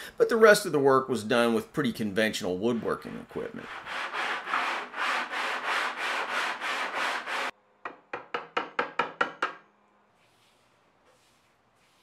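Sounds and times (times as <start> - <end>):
wood rubbed on sandpaper: 3.4 - 7.5.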